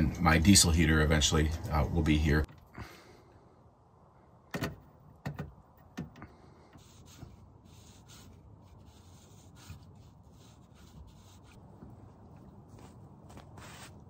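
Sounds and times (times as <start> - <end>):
faint rubbing and scraping: 6.3 - 14.0.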